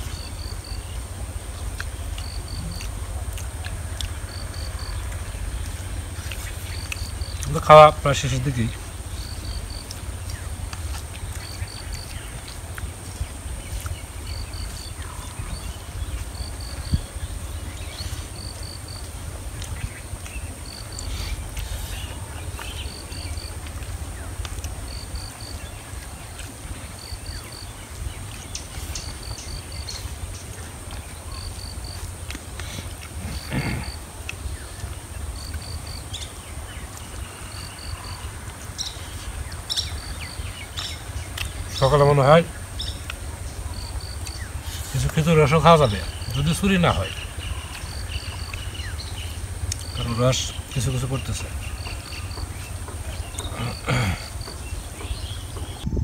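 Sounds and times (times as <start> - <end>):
high insect drone: 0.0 - 56.0
wind rumble on microphone: 10.1 - 20.7, 54.3 - 56.0.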